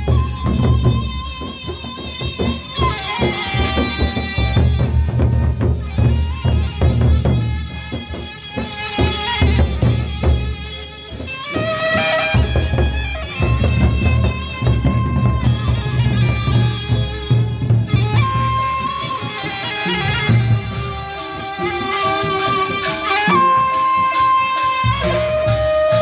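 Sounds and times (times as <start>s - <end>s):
large barrel drums beating: 0.0s - 26.0s
hand cymbals clashing: 18.5s - 26.0s.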